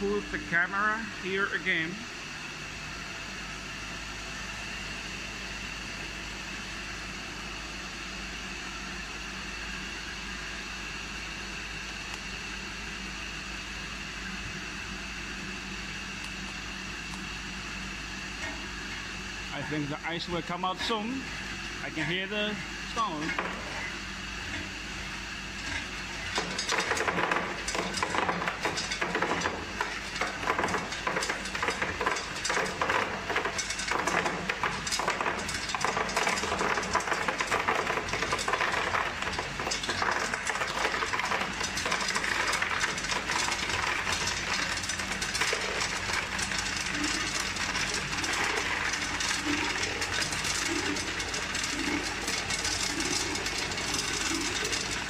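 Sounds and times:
machine hum: 0:00.0 - 0:55.0
ice clattering into a tub: 0:26.3 - 0:55.0.

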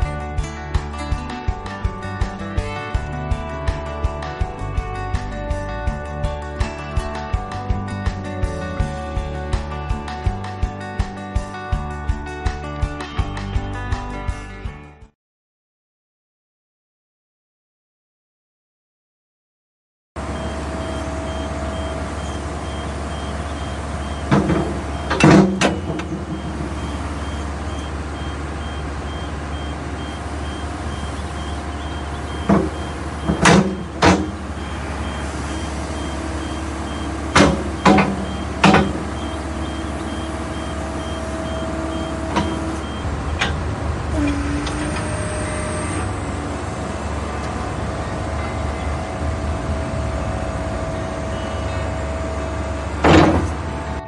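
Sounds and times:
diesel engine running: 0:00.0 - 0:14.1, 0:20.2 - 0:54.0
faint beeping: 0:20.3 - 0:43.6, 0:47.6 - 0:53.0
loud metal clunks: 0:22.6 - 0:45.3, 0:53.0 - 0:53.8.

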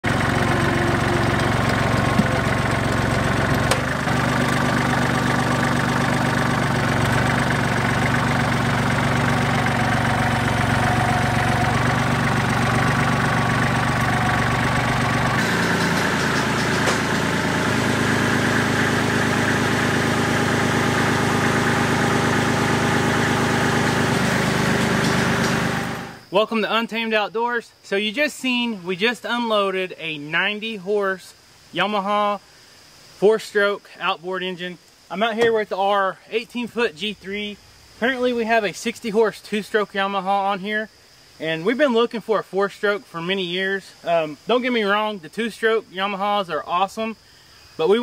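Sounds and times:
tractor diesel engine running: 0:00.0 - 0:26.3.

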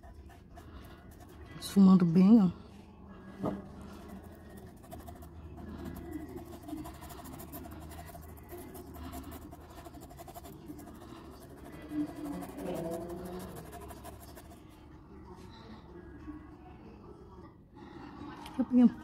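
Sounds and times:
paintbrush rubbing on fabric: 0:00.0 - 0:01.8, 0:03.8 - 0:14.7
low background hum: 0:00.0 - 0:19.0.

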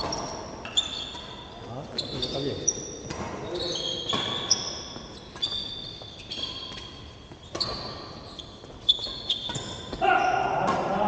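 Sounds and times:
sneakers squeaking on court: 0:00.0 - 0:11.0
racket striking shuttlecock: 0:09.1 - 0:11.0.

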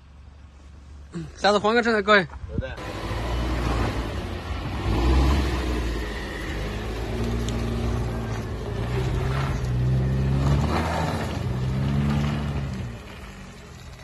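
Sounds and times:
car engine revving: 0:02.8 - 0:13.9.

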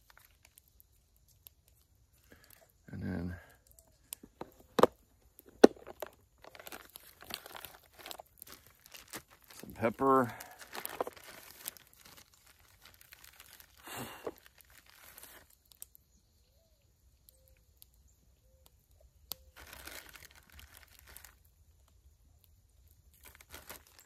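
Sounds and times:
plastic bag crinkling: 0:04.2 - 0:15.7, 0:19.5 - 0:21.4, 0:23.2 - 0:24.0.

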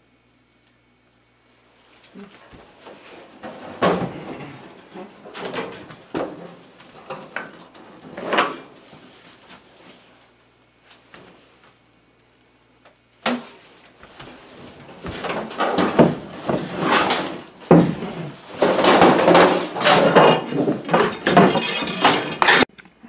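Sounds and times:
sheet-metal cabinet rattling and banging: 0:15.1 - 0:22.7.

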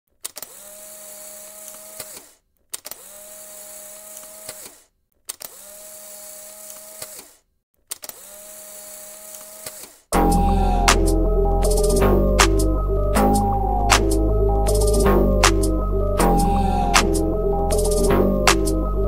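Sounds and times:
loud music: 0:10.2 - 0:19.0.

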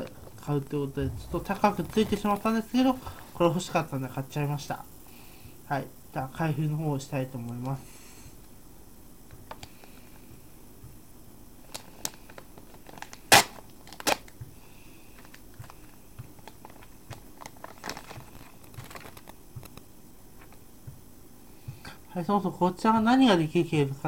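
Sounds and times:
plastic packaging crinkling: 0:01.4 - 0:03.4, 0:11.7 - 0:14.4, 0:16.4 - 0:19.8
plastic tearing: 0:11.7 - 0:14.4, 0:16.4 - 0:19.4.

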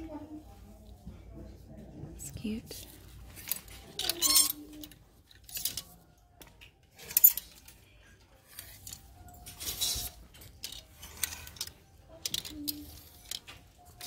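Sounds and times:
plastic hangers clacking on metal rack: 0:03.2 - 0:07.8, 0:08.4 - 0:14.0.

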